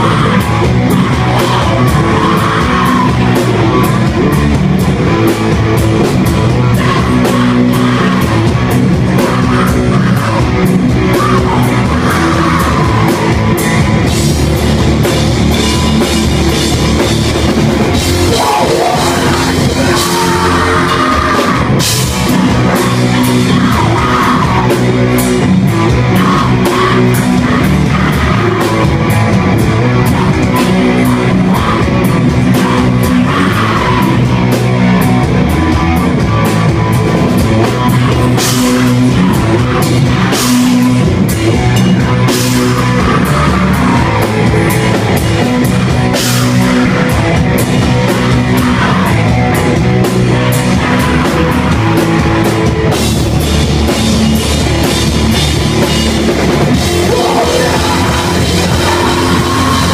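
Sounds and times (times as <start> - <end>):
distorted guitar and bass: 0.0 - 59.9
harsh screamed vocals: 0.0 - 59.9
pounding drum kit: 0.0 - 59.9.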